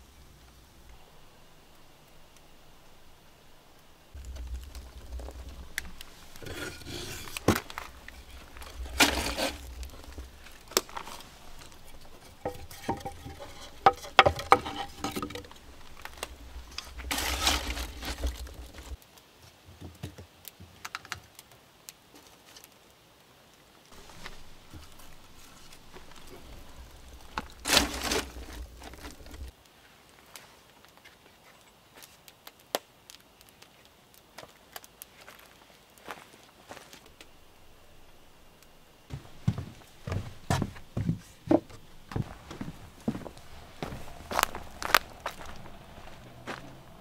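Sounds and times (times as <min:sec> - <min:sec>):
scraping rustles: 0:04.1 - 0:19.0, 0:23.9 - 0:29.5, 0:39.1 - 0:47.0
logs knocking and clattering: 0:04.2 - 0:19.0, 0:39.1 - 0:46.7.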